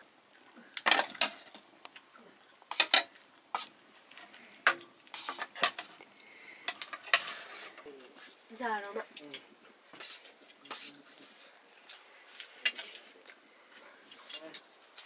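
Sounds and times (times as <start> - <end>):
spoons clinking on steel plates: 2.7 - 3.1, 12.6 - 13.1.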